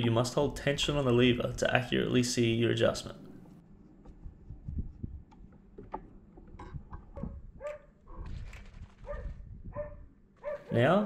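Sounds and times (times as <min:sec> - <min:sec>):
dog whining and yelping: 0:09.0 - 0:10.7.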